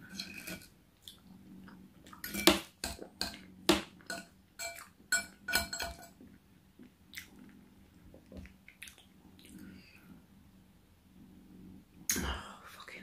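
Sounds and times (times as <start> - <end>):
fork clinking on a plate: 4.1 - 6.2.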